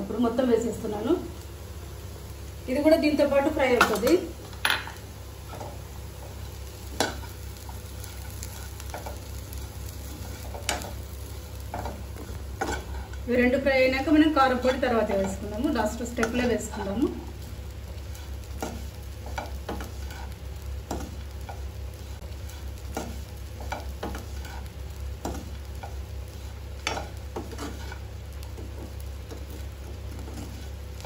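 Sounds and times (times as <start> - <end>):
potatoes sizzling in oil: 0.0 - 31.0
spoon scraping and tapping pan: 26.8 - 28.0.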